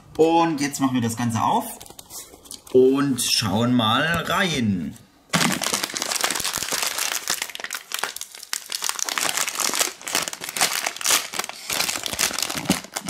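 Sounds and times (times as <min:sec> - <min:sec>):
wrapper crinkling: 0:05.3 - 0:13.0.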